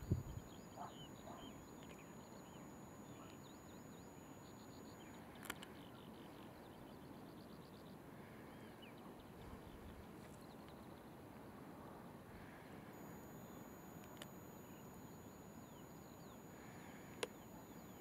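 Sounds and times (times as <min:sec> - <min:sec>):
bird chirps: 0:00.0 - 0:08.0
bird trill: 0:00.0 - 0:08.0
faint high whine: 0:00.0 - 0:18.0
steady hiss: 0:12.4 - 0:18.0
sharp click: 0:14.0 - 0:14.4.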